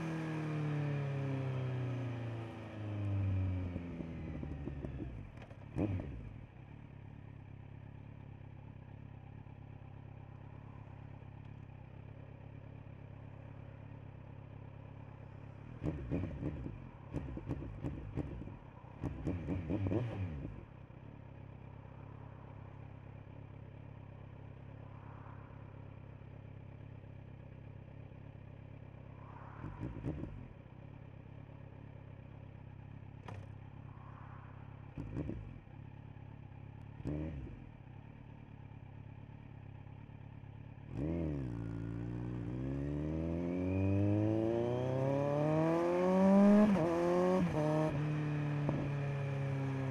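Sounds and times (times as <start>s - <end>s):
motorcycle engine idling: 2.4s - 19.5s, 20.4s - 34.1s, 34.7s - 42.4s.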